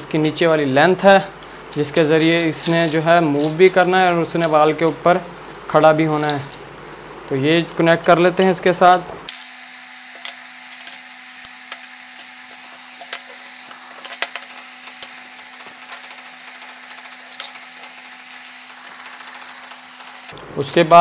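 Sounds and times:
light clicks and knocks of parts: 0.0s - 5.2s, 10.2s - 20.4s
background hum: 0.0s - 21.0s.

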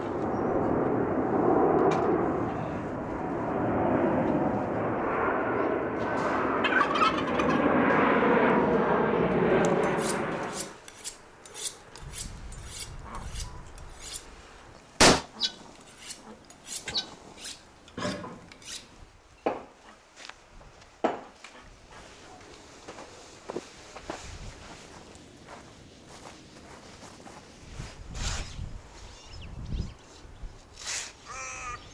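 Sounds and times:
footsteps on loose soil: 22.0s - 28.8s.

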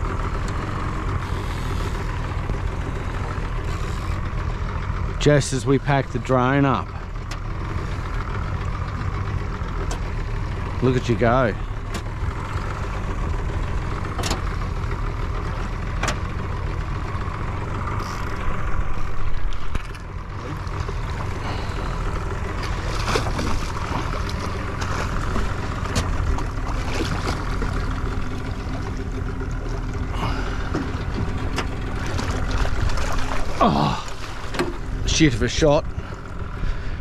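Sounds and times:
outboard motor idling: 0.0s - 37.0s.

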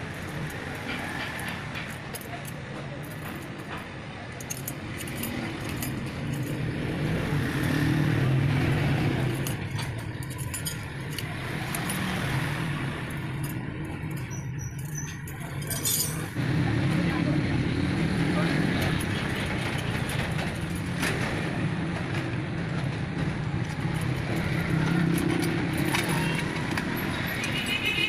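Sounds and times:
metal spokes clinking: 0.0s - 16.4s, 18.3s - 28.0s.

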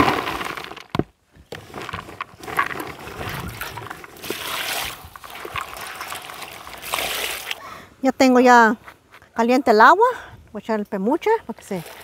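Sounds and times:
hand sloshing water: 3.0s - 7.6s
water pouring into basin: 3.0s - 7.6s.

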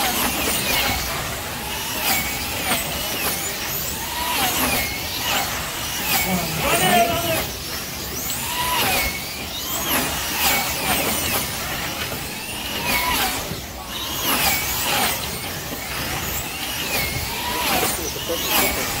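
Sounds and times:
slot car electric motors whining: 0.0s - 19.0s.

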